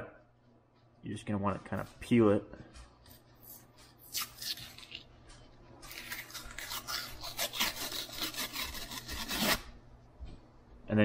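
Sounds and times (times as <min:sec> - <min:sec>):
drywall paper tearing: 0:05.9 - 0:09.7.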